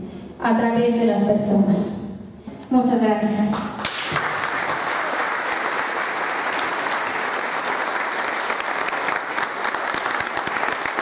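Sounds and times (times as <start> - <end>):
people applauding: 3.8 - 11.0.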